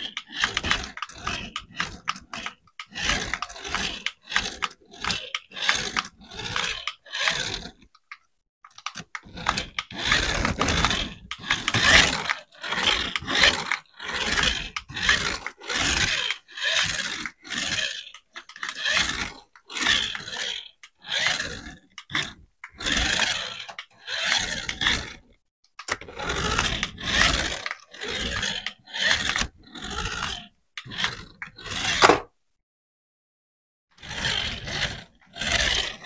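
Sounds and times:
rough scraping strokes: 0.0 - 8.0, 9.0 - 25.2.

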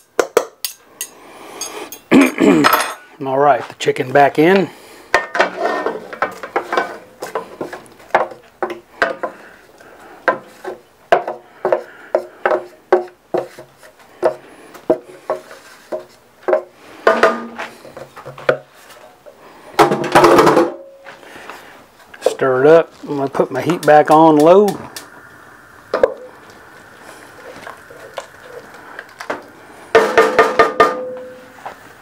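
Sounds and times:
utensil scraping a metal pan: 5.2 - 7.8.

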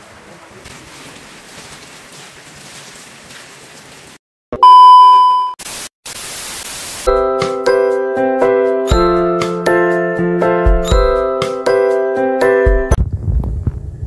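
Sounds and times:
rain hiss: 0.0 - 4.2, 5.7 - 7.1
test-tone beep: 4.6 - 5.6
tv static hiss: 5.6 - 7.1.

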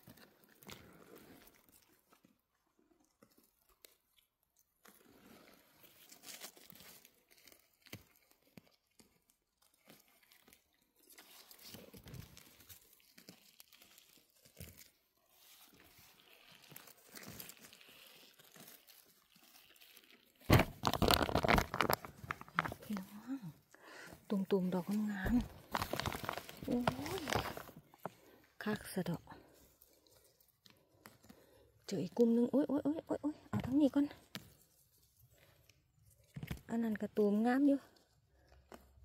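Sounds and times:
rustling of forest vegetation: 4.9 - 8.5, 9.8 - 32.4
twigs snapping: 20.5 - 23.3, 24.9 - 28.1.

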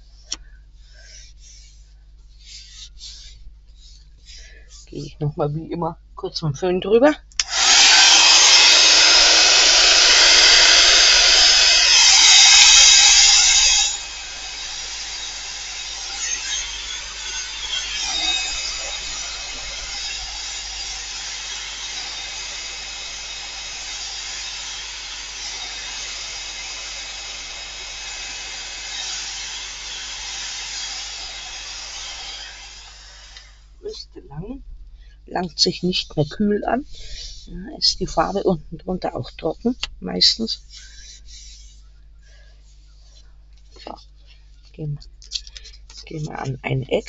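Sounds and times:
hot-air dryer blowing: 7.4 - 33.9.

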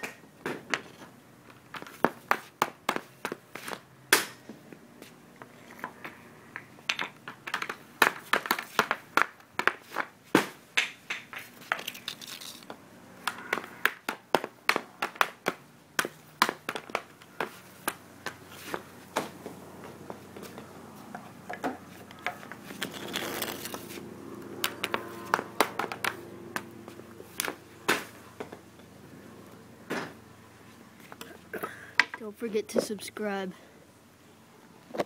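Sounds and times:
pucks hitting net frame and wall: 0.0 - 4.6, 5.5 - 28.7, 29.9 - 30.2, 31.1 - 33.0
hockey stick striking pucks: 6.0 - 12.3, 13.2 - 19.4, 20.4 - 24.0, 24.6 - 28.6.

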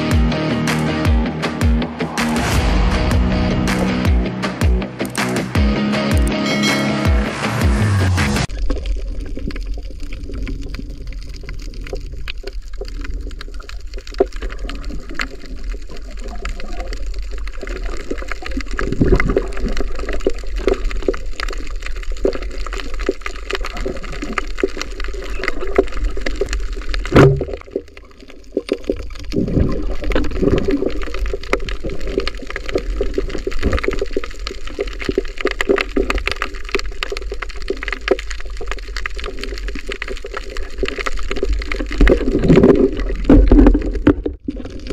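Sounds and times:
dense crackling clicks: 0.0 - 6.4, 8.4 - 44.9
underwater swishing and bubbling: 8.4 - 44.9
loud underwater knock: 27.1 - 27.6.

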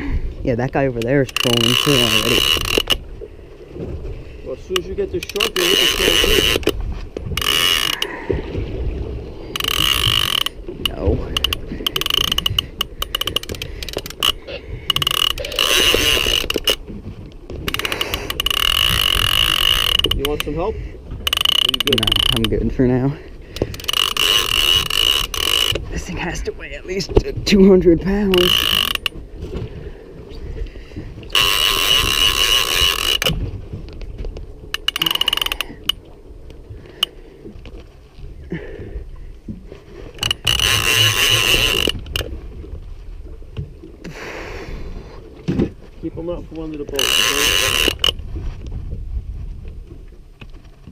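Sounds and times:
fishing reel clicking: 1.0 - 3.0, 4.8 - 6.8, 7.4 - 8.1, 9.5 - 16.8, 17.7 - 20.6, 21.2 - 22.7, 23.6 - 25.8, 28.3 - 29.2, 31.3 - 33.4, 34.7 - 36.0, 40.1 - 42.3, 46.9 - 48.2.

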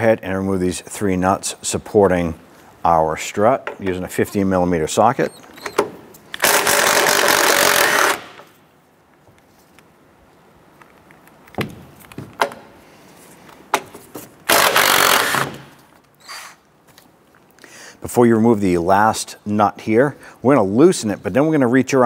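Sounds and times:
impact wrench running: 5.8 - 8.5, 14.5 - 15.7.

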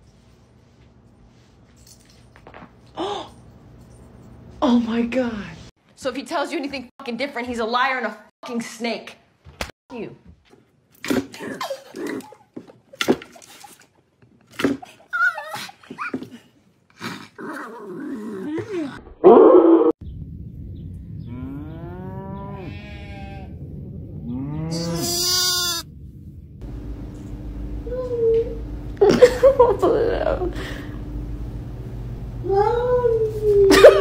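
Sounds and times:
steady low hum: 20.0 - 34.0
lamb bleating: 22.6 - 23.5, 24.7 - 25.9.

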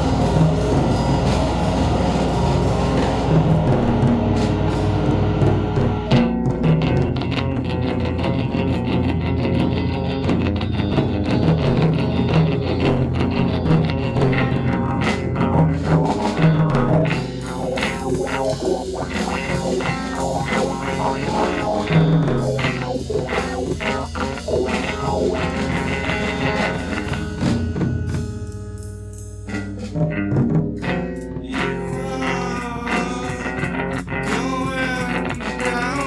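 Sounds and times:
drum kit: 0.0 - 36.0
guitar playing: 0.0 - 36.0.

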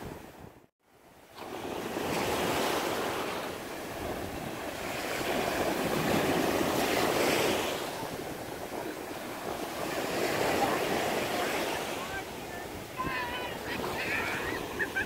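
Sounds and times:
surf washing over sand: 1.1 - 15.0.

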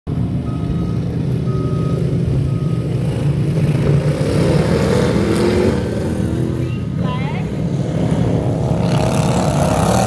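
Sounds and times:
racing lawn mower engines: 0.1 - 10.0
faint beeping: 0.4 - 3.2.

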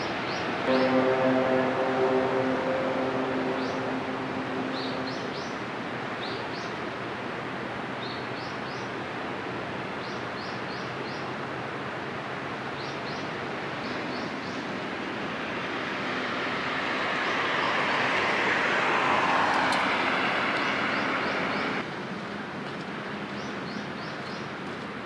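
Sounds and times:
ship's horn: 0.6 - 6.5, 15.0 - 21.8
steady rushing noise: 0.6 - 7.2, 14.7 - 21.9.

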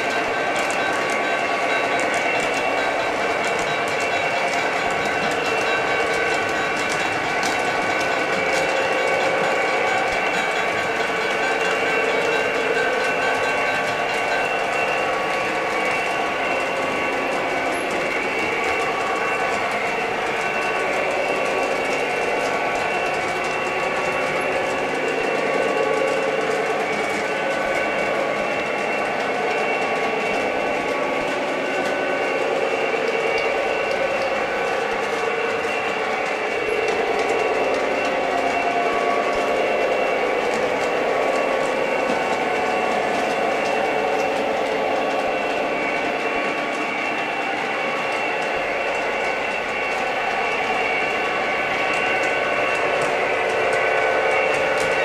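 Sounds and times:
faint wheel clicks on rails: 0.0 - 55.0.

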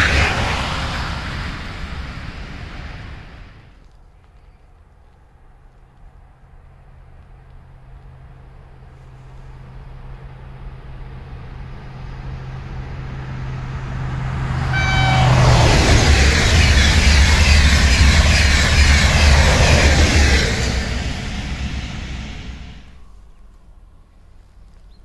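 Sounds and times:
high-speed train passing: 0.0 - 3.8, 6.3 - 23.3
train horn toot: 14.6 - 17.7.

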